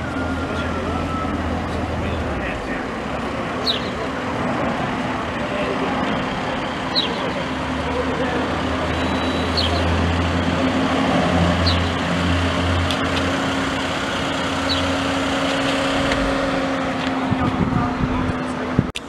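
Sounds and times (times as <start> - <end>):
car engine idling: 0.0 - 19.0.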